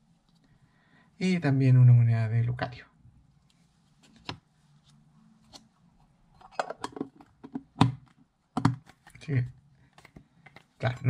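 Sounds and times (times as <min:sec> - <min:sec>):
handling clicks and taps: 0:06.4 - 0:09.2.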